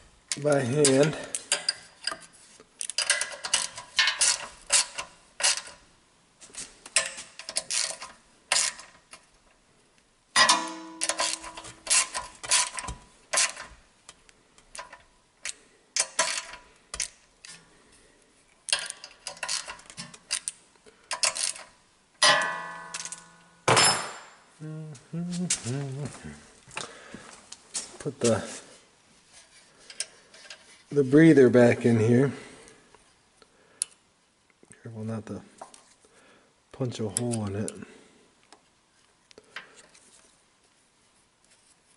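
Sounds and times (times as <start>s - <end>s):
metallic clicks of hand tools: 2.8s - 5.8s, 10.4s - 17.6s, 18.7s - 23.4s.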